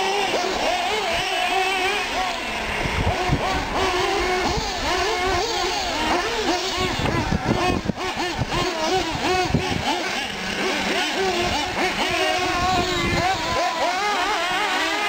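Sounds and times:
rc truck engines whining: 0:00.0 - 0:15.0.

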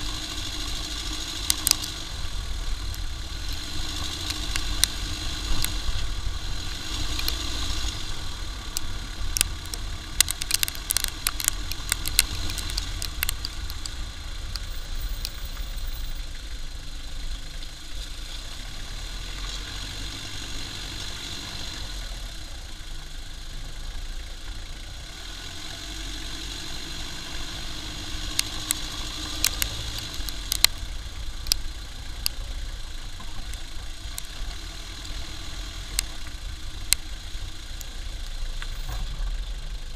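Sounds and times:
sharp ticks: 0:00.0 - 0:16.1, 0:27.5 - 0:38.8
engine drone: 0:00.0 - 0:39.9
road and wind rumble: 0:00.0 - 0:39.9.

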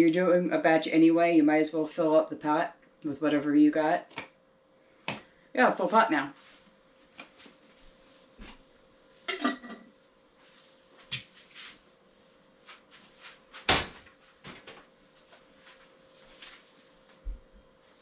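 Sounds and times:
faint steady hum: 0:00.0 - 0:18.0
kitchen items clattering: 0:09.2 - 0:09.9.

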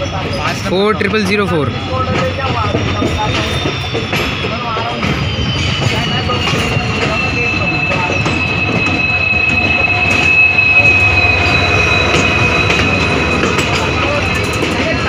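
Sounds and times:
diesel train passing: 0:00.0 - 0:15.0
railway wheels squealing: 0:00.0 - 0:15.0
train coaches rumbling on track: 0:00.0 - 0:15.0.

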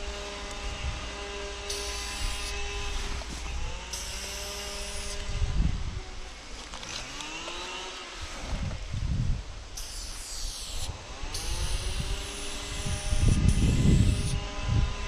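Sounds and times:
steady machine drone: 0:00.0 - 0:15.0
spray paint can hissing: 0:01.7 - 0:02.6, 0:03.9 - 0:05.2, 0:09.8 - 0:14.3.

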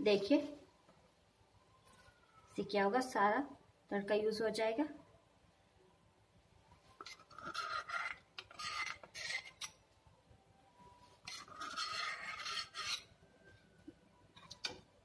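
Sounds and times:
spoon scraping steel ladle: 0:07.0 - 0:09.8, 0:11.2 - 0:13.1.

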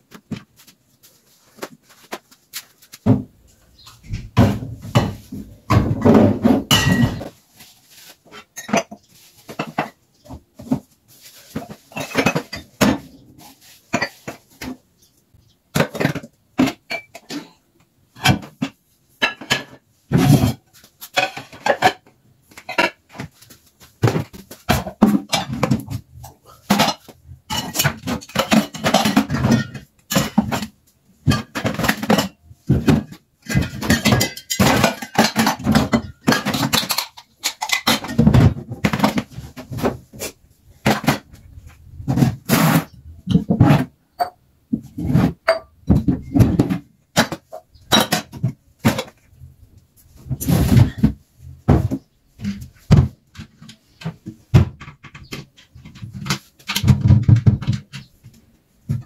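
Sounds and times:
dishes and cutlery clinking: 0:06.7 - 0:07.4, 0:11.5 - 0:13.2, 0:31.3 - 0:38.4.

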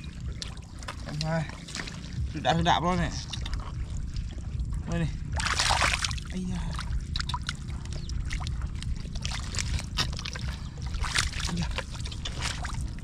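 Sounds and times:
steady low rumble: 0:00.0 - 0:13.0
water sloshing and splashing: 0:00.0 - 0:13.0.

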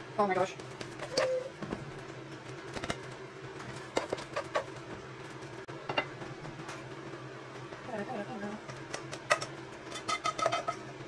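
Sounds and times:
spoon scraping a saucepan: 0:09.3 - 0:10.9.

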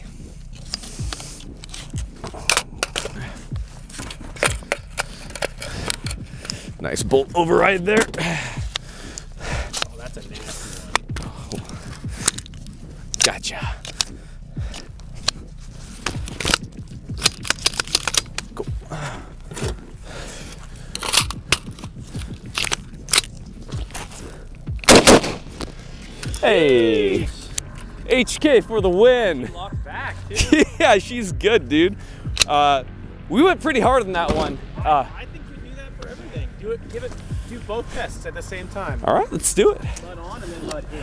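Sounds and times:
rifle action metallic clacks: 0:00.7 - 0:03.2, 0:03.9 - 0:06.6, 0:10.9 - 0:14.1, 0:16.0 - 0:18.7, 0:20.9 - 0:24.1, 0:24.8 - 0:26.4.

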